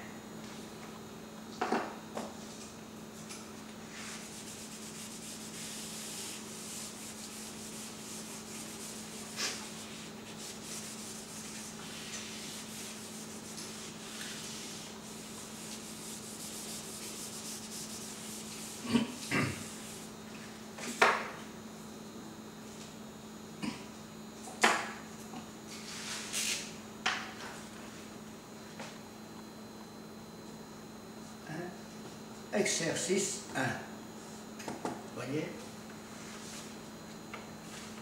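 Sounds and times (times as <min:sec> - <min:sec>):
eraser rubbing on whiteboard: 0:03.9 - 0:20.1.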